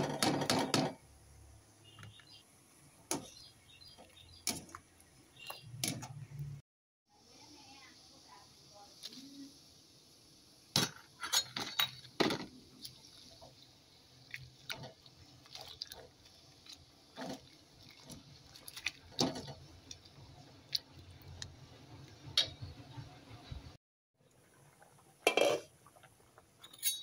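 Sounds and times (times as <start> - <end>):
soup bubbling hiss: 12.0 - 23.4.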